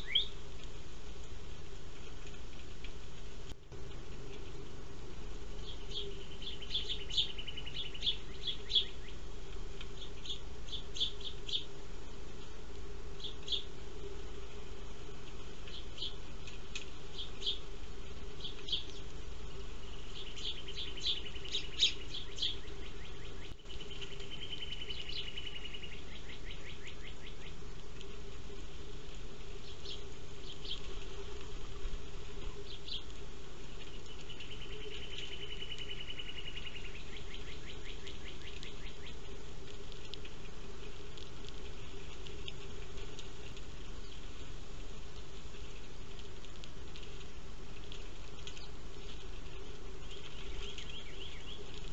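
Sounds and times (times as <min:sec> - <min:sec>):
sparrows chirping: 0:00.0 - 0:00.6, 0:03.8 - 0:14.4, 0:15.0 - 0:27.8, 0:28.8 - 0:39.4, 0:41.6 - 0:46.2, 0:47.6 - 0:51.9
steady low hum: 0:00.0 - 0:51.9.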